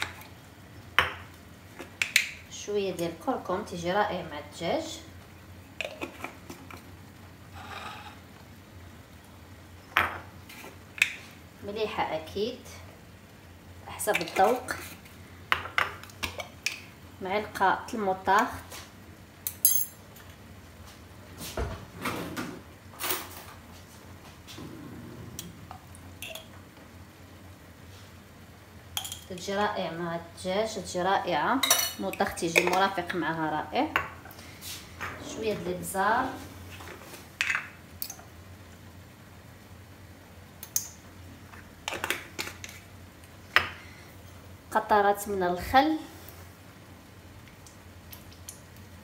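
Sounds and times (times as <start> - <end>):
spice container clicks and taps: 2.0 - 2.4.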